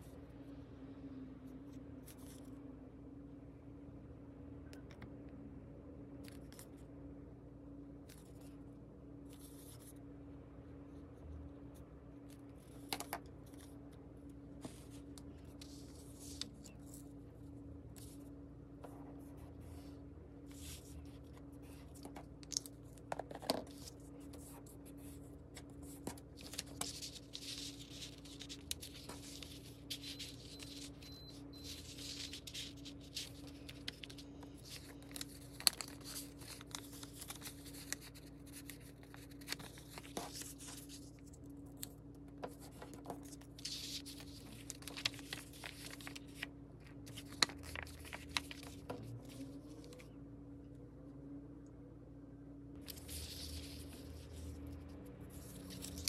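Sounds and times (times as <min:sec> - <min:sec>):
steady low hum: 0:00.0 - 0:56.0
paper rustling and crinkling: 0:14.5 - 0:18.3, 0:18.9 - 0:50.2, 0:52.8 - 0:56.0.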